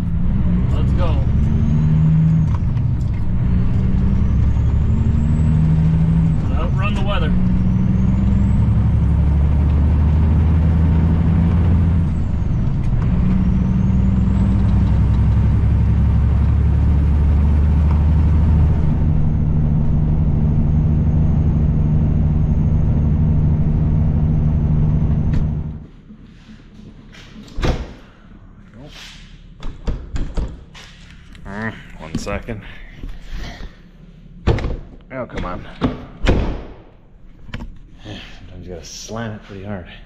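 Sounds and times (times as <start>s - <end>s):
truck diesel engine revving: 0.0s - 25.8s.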